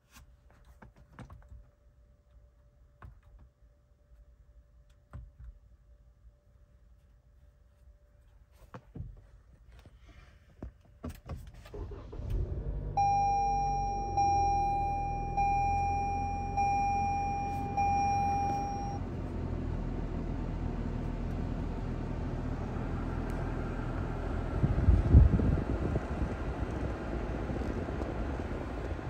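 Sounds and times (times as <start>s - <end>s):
car engine starting and idling: 11.6s - 29.0s
dashboard warning chime: 12.9s - 19.0s.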